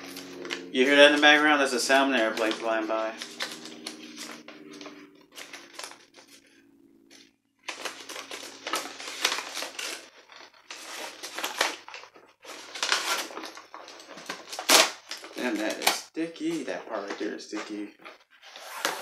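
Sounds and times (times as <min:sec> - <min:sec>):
cardboard and paper tearing: 0:00.0 - 0:06.5, 0:07.6 - 0:17.8, 0:18.4 - 0:19.0
airplane drone: 0:00.0 - 0:07.4.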